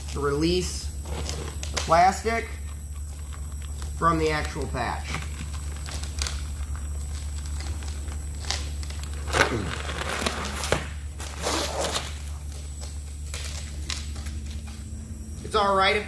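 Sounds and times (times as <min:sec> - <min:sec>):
low hum: 0:00.0 - 0:16.0
plastic crinkling and tearing: 0:03.2 - 0:14.6.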